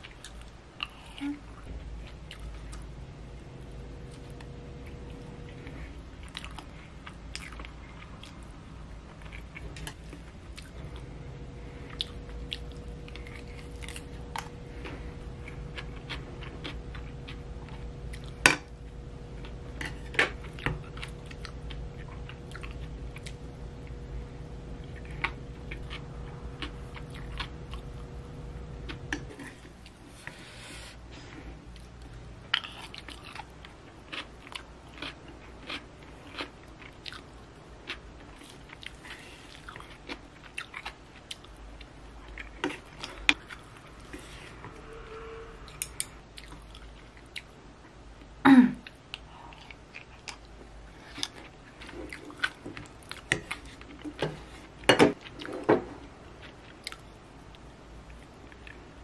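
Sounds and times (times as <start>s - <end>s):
chewing crunchy food: 0.0s - 2.9s, 4.0s - 30.0s, 31.8s - 44.3s, 45.8s - 48.0s, 48.8s - 58.9s
low hum: 0.0s - 33.8s, 41.3s - 49.9s.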